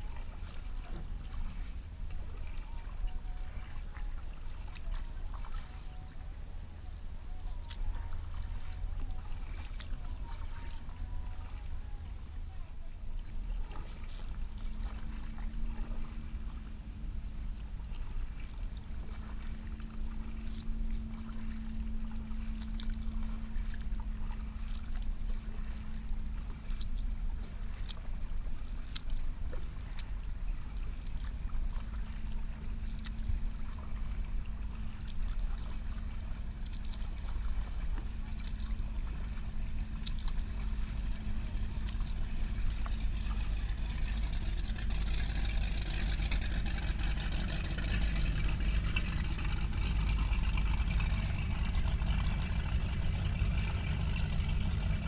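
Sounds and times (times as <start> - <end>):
distant motorboat hum: 0.0 - 55.0
low rumble: 0.0 - 55.0
paddle splashes and drips: 0.0 - 55.0.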